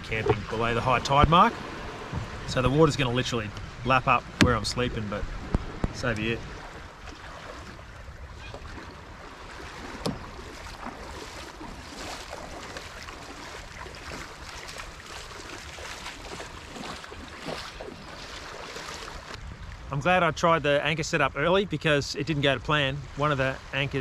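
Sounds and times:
water lapping at shallows: 0.0 - 19.9
light wind: 0.0 - 24.0.

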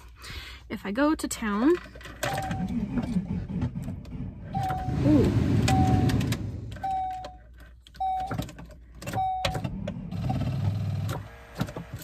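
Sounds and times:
dashboard warning chime beeps: 4.5 - 8.4, 9.1 - 9.6.

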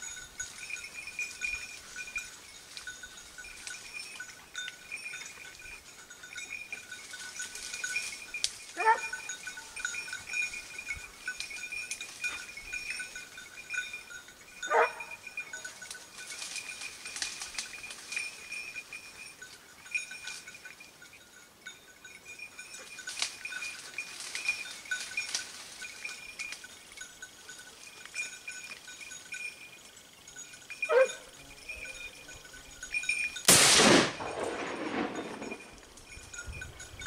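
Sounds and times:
dog bell jingling: 0.0 - 33.5, 34.1 - 37.0
dog barking: 8.8 - 9.2, 14.7 - 15.1, 30.9 - 31.3.

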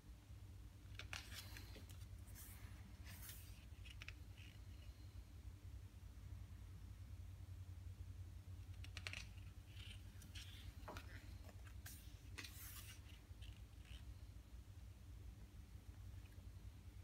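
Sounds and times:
book page turning: 0.9 - 4.6, 8.8 - 14.0.

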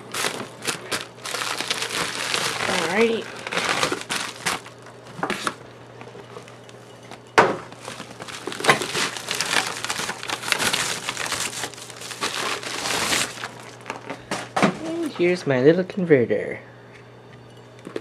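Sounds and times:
rustling in packing peanuts: 0.0 - 5.6, 7.7 - 15.4
plastic mailer bag crinkling: 0.0 - 15.4.

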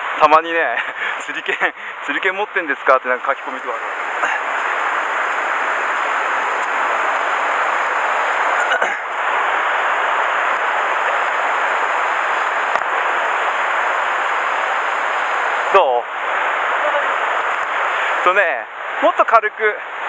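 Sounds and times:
stream rushing over rocks: 3.4 - 18.1.

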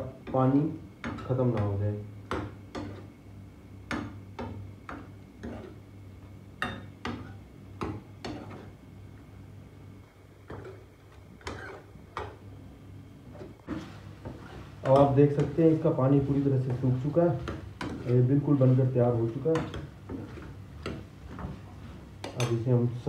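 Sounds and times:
ladle scraping a frying pan: 5.4 - 5.8, 11.4 - 11.9, 13.3 - 15.8, 19.5 - 22.5.

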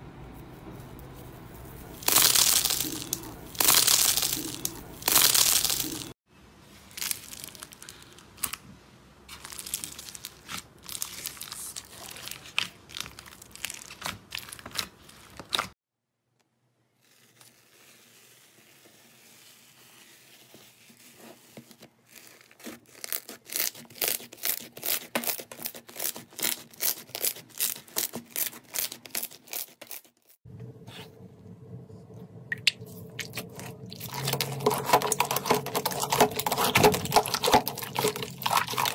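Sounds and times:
foil crinkling: 1.2 - 6.2, 6.8 - 8.6, 9.3 - 15.7, 17.0 - 30.4, 33.2 - 38.9
slime squeezed and stretched: 33.2 - 38.9.

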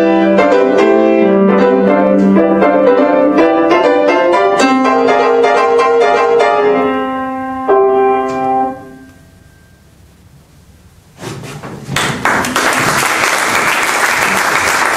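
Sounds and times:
piano chord ringing: 0.0 - 10.0
audience applause: 12.0 - 14.9.

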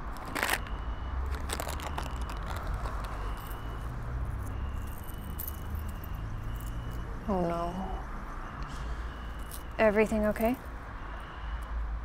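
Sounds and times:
handbag contents rustling: 0.0 - 5.9.

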